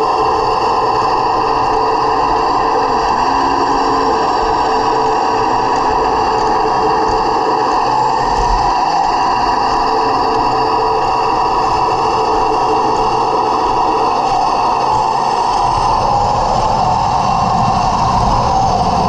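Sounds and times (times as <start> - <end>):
electric motor whine: 0.0 - 19.0.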